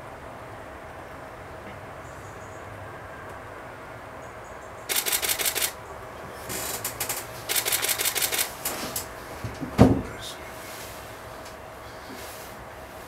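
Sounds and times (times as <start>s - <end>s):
camera shutters firing in bursts: 4.9s - 5.8s, 7.1s - 8.7s.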